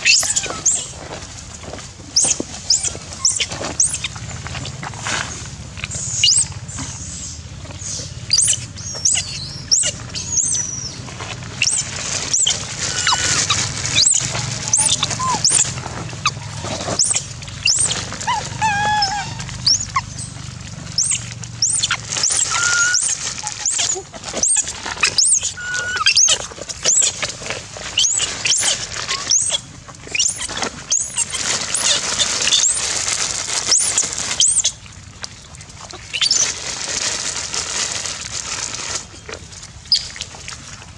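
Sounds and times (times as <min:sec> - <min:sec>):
lower wavering monkey calls: 0:00.0 - 0:01.0, 0:02.2 - 0:04.2, 0:05.9 - 0:27.1, 0:28.0 - 0:32.8, 0:33.7 - 0:34.8, 0:36.0 - 0:36.5
monkeys squeaking: 0:00.0 - 0:01.0, 0:02.2 - 0:04.8, 0:05.9 - 0:06.5, 0:07.8 - 0:27.2, 0:27.9 - 0:33.0, 0:33.6 - 0:34.8, 0:36.1 - 0:36.6.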